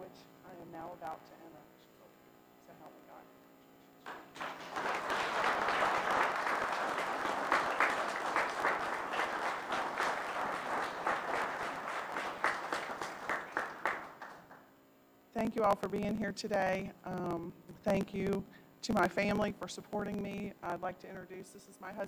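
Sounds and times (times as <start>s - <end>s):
small audience applauding: 4.0s - 14.7s.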